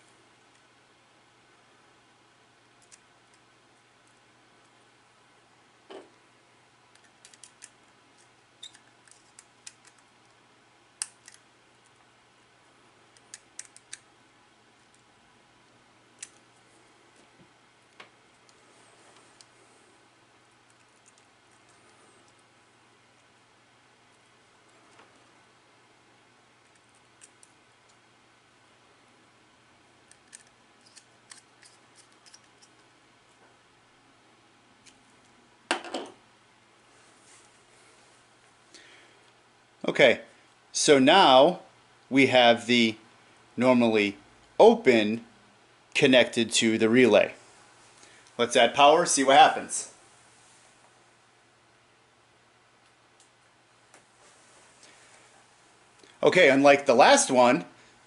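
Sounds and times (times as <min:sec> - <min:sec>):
plastic parts clacking: 0:07.0 - 0:10.1.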